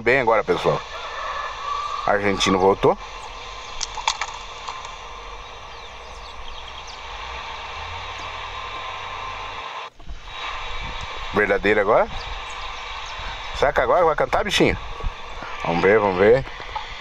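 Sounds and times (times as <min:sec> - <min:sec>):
songbird chirps: 0:00.0 - 0:09.6, 0:11.8 - 0:15.7
faint bird calls: 0:00.0 - 0:17.0
outdoor hiss and rumble: 0:00.0 - 0:17.0.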